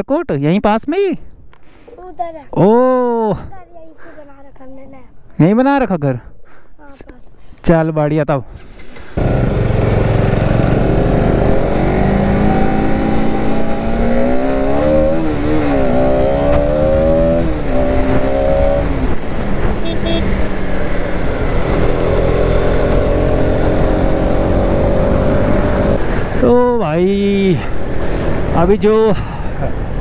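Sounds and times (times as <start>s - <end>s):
motorcycle engine revving: 8.6s - 26.6s.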